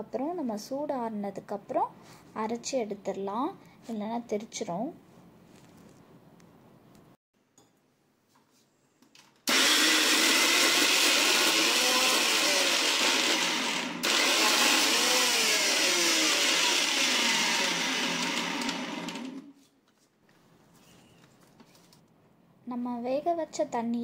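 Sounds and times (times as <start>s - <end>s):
electric mixer grinder running: 9.5s - 19.5s.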